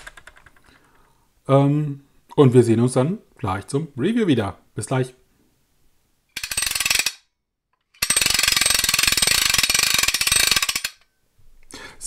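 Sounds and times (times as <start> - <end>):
rapid mechanical clicking: 8.0 - 11.0.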